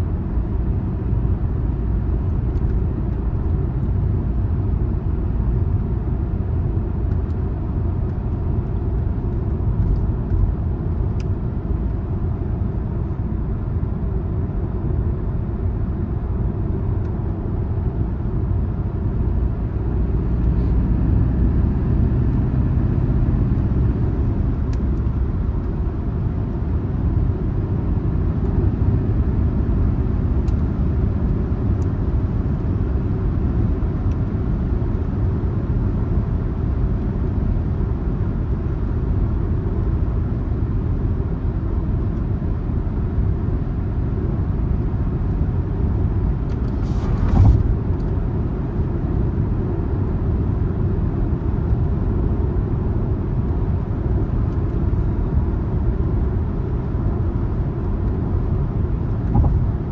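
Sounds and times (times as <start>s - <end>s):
car tyre and engine rumble: 0.0s - 59.9s.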